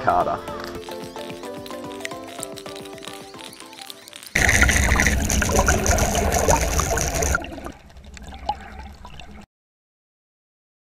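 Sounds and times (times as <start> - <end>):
water splashing and trickling: 0.7 - 9.5
lure paddling on water surface: 4.1 - 9.4.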